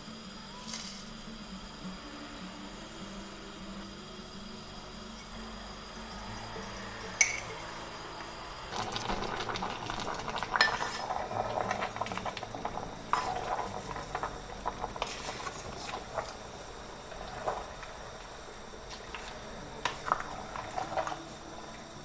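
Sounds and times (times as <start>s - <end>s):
spoon stirring in metal pot: 9.0s - 16.4s, 18.9s - 21.4s.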